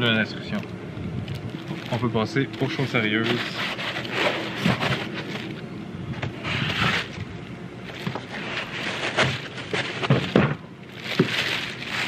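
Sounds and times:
plastic bag crinkling: 0:01.2 - 0:05.6, 0:07.8 - 0:12.0.

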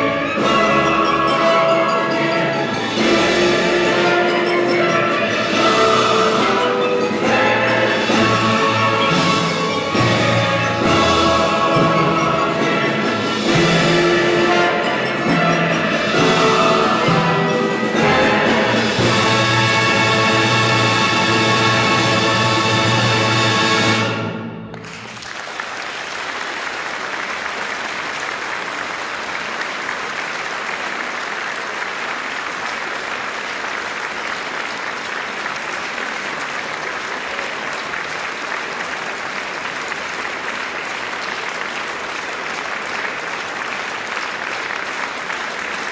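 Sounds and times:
audience applauding: 0:24.7 - 0:45.9.

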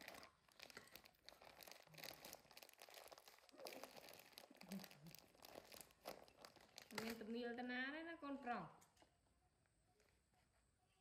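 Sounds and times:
plastic bag crinkling: 0:00.0 - 0:07.5.

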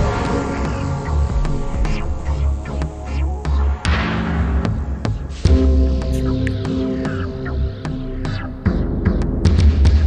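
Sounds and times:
electronic film score: 0:00.0 - 0:10.0.

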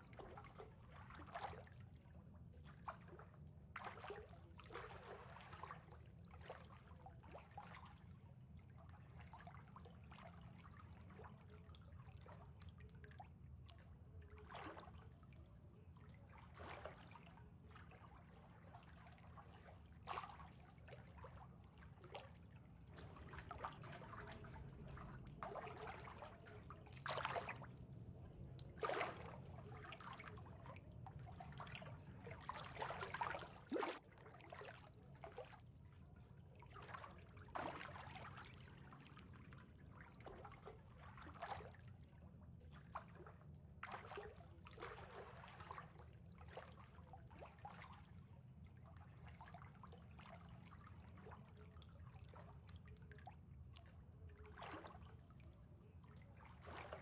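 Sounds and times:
water trickling and lapping: 0:00.0 - 0:57.0
low steady hum: 0:07.9 - 0:46.3.

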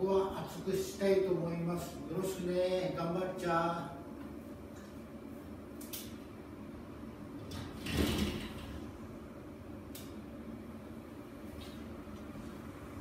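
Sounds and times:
faint room hum: 0:00.0 - 0:13.0.

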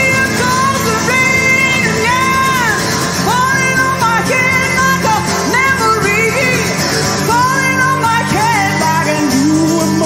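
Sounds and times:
acoustic guitar and band: 0:00.0 - 0:10.0
woman singing: 0:00.0 - 0:10.0.

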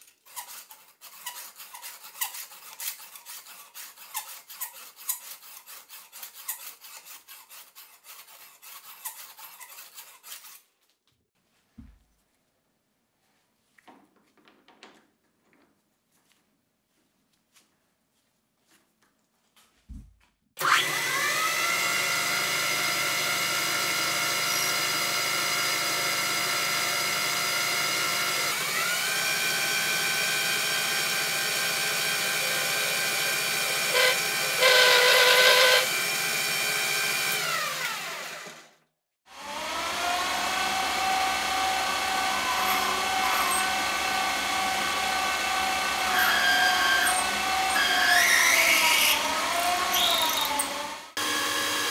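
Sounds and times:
drill cutting copper: 0:20.6 - 0:38.7, 0:39.4 - 0:51.9
metal lathe motor whine: 0:39.5 - 0:51.9.

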